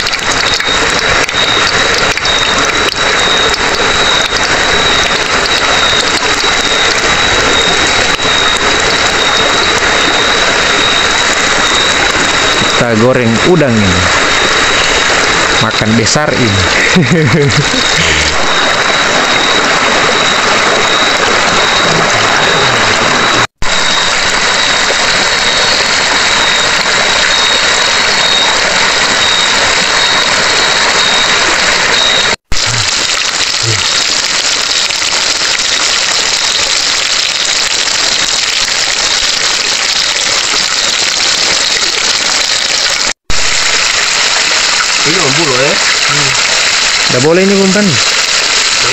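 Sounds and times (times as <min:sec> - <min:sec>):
shrimp sizzling in hot oil: 0:23.7 - 0:48.9.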